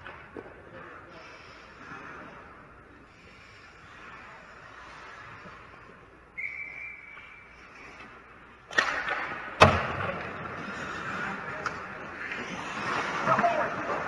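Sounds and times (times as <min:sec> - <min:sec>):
skates scraping ice: 0:00.0 - 0:14.0
puck crack: 0:06.4 - 0:14.0.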